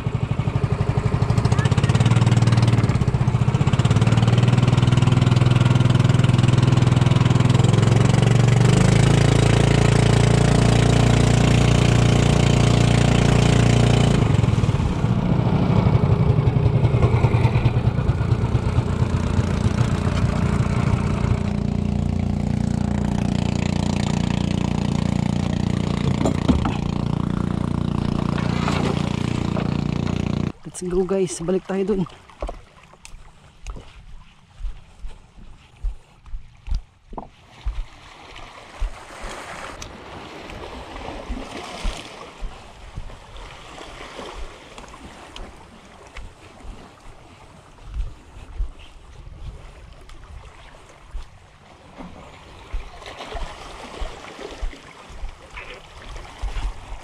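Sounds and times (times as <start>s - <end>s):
small boat engine running: 0.0s - 57.0s.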